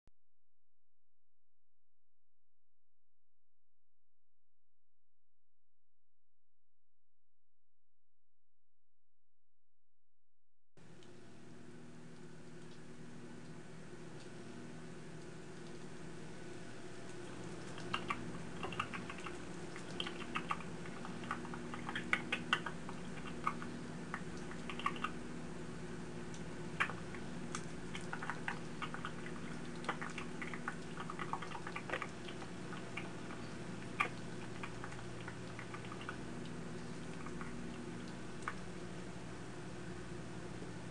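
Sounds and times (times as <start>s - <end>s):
steady low hum: 10.8s - 40.9s
person nibbling with crunches: 17.1s - 25.2s, 26.8s - 38.7s.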